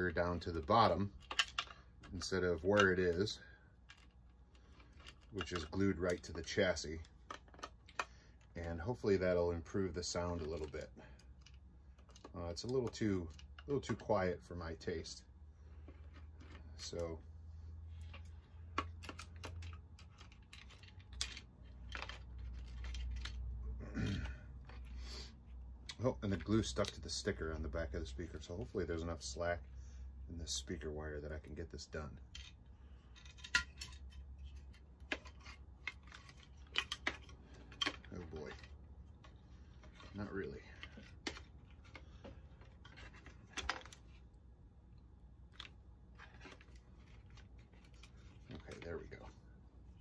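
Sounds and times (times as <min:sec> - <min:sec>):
light plastic clicks and clatter: 0:01.1 - 0:08.7.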